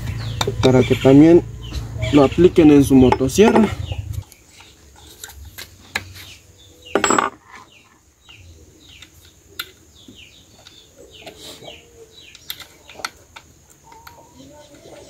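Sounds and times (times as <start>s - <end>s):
metal clank: 6.9s - 7.4s.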